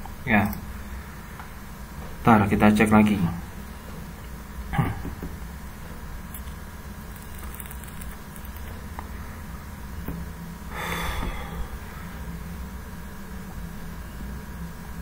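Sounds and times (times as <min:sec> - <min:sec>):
low electrical hum: 0:00.0 - 0:15.0
person sniffing: 0:10.7 - 0:12.0.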